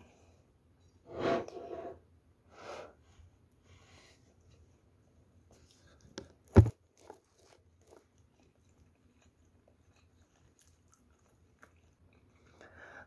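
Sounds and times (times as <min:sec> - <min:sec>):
chewing fried rice: 0:05.6 - 0:12.8.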